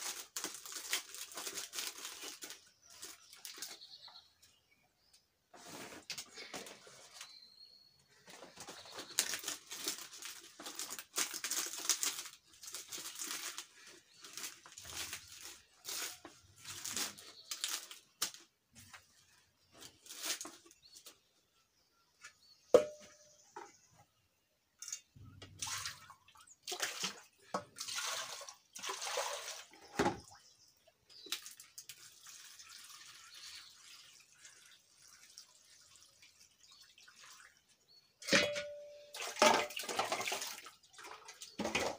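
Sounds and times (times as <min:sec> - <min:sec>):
wet leaves rustling: 0:00.0 - 0:03.8, 0:08.8 - 0:18.4, 0:19.1 - 0:21.1
knock against a metal pot: 0:22.8 - 0:23.2
water splashing: 0:25.6 - 0:29.8.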